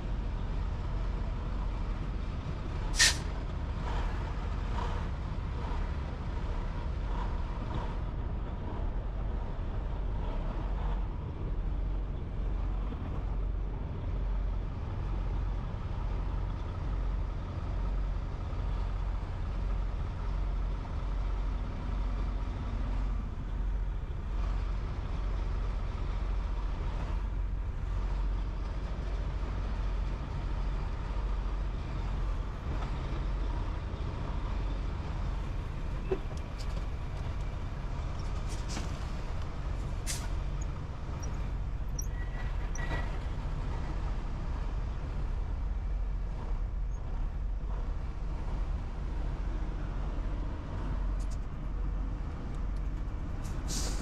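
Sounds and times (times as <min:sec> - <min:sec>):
truck engine rumbling: 0:00.0 - 0:54.0
short hisses: 0:03.0 - 0:03.3, 0:53.6 - 0:54.0.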